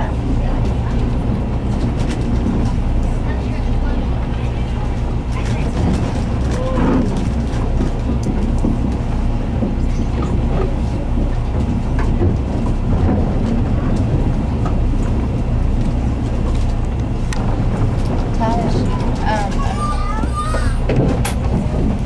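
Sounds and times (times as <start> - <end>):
boat engine droning: 0.0 - 22.0.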